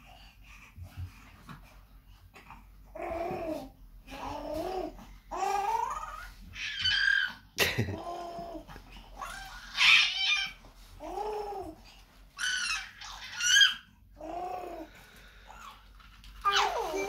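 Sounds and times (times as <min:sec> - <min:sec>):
baby babbling and squealing: 0:12.4 - 0:14.6, 0:16.4 - 0:17.0.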